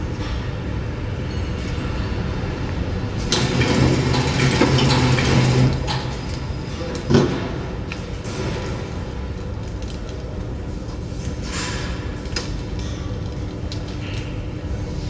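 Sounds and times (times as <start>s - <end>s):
packing machine humming and rattling: 0.0s - 15.0s.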